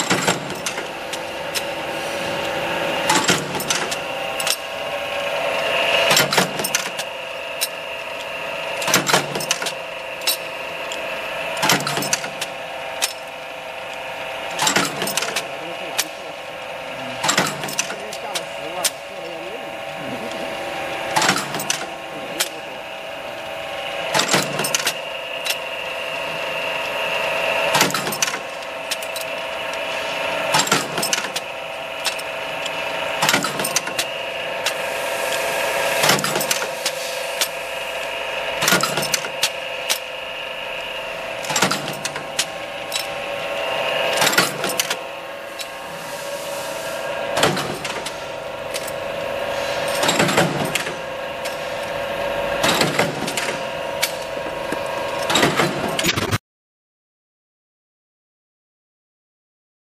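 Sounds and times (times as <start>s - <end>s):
press motor hum: 0.0s - 56.4s
press ram clunk: 41.4s - 43.1s, 47.3s - 49.0s, 52.6s - 56.3s.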